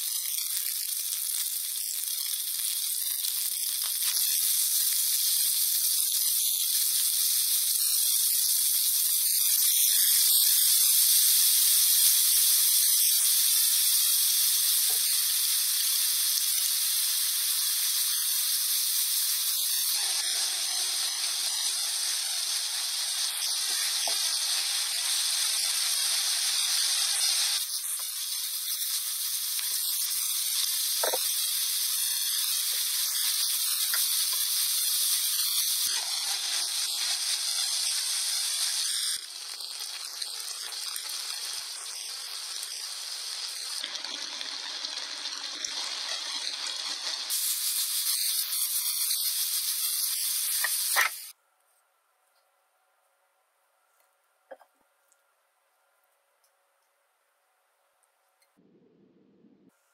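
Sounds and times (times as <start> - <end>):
food sizzling in frying pan: 0.0 - 51.4.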